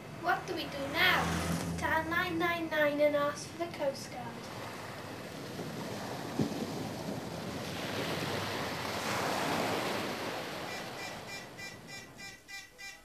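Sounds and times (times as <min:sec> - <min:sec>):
sea waves washing: 0:00.0 - 0:12.2
electronic telephone ringing: 0:10.7 - 0:13.0.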